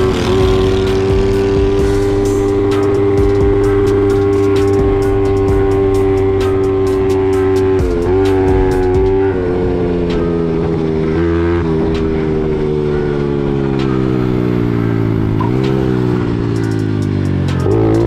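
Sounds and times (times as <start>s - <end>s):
mini bike engine revving: 0.0s - 5.1s.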